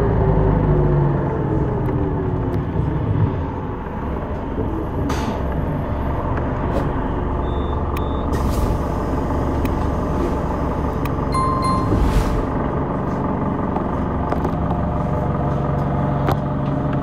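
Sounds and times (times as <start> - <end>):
bus engine and road rumble: 0.0 - 17.0
short electronic beeps: 11.3 - 12.4.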